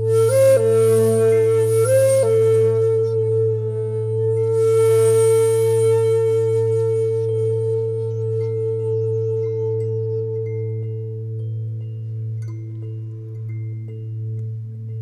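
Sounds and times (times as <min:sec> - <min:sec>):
low drone: 0:00.0 - 0:15.0
singing bowls ringing: 0:08.1 - 0:15.0.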